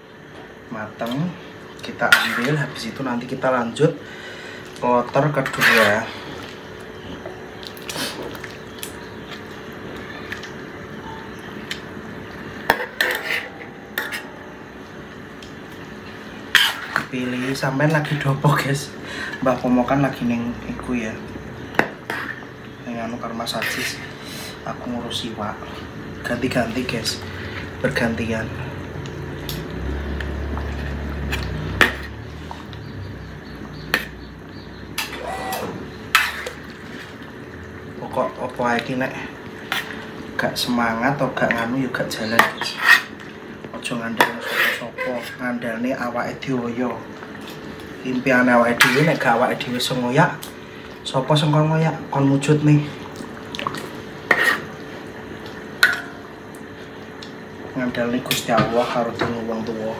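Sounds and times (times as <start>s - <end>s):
low steady hum: 0.0s - 59.9s
steady background hiss: 0.0s - 59.9s
utensils clinking against wok: 55.8s - 56.2s.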